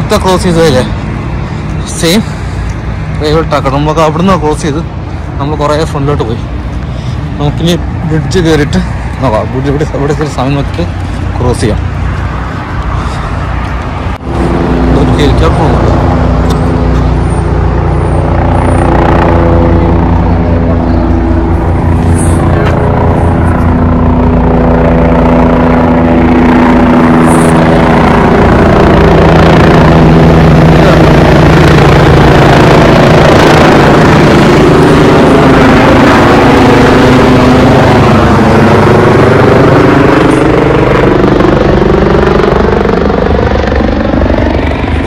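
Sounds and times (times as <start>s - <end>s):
large engine running: 0.0s - 45.0s.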